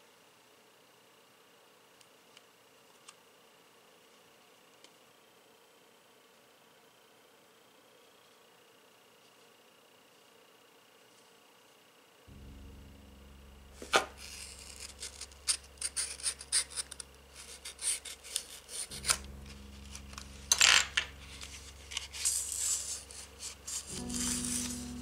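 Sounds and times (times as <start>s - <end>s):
soft background music: 12.3s - 25.0s
cardboard rustling and scraping: 13.8s - 25.0s.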